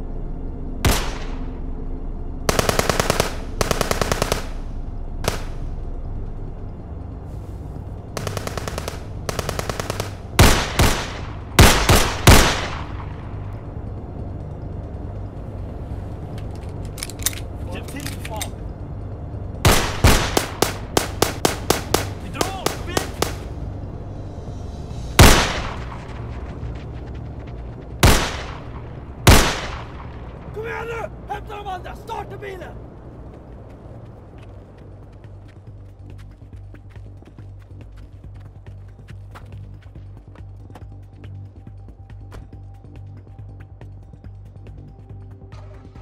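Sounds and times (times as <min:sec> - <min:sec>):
rapid gunfire bursts: 0:02.5 - 0:05.6, 0:08.2 - 0:12.9, 0:19.7 - 0:23.5
handgun shots echoing: 0:19.7 - 0:23.5
pistol gunshot with echo: 0:29.3 - 0:29.9.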